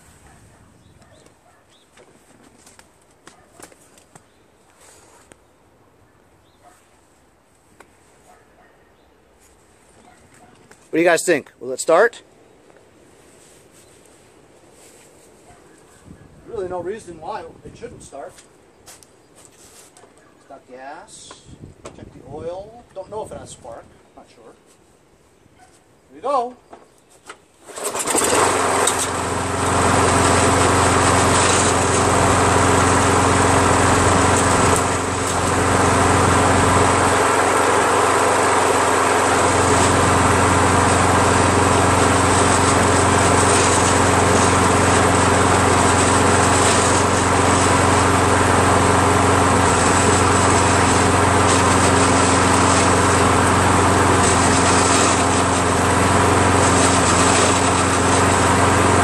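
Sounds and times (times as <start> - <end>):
lawn mower engine running: 27.6 - 59.0.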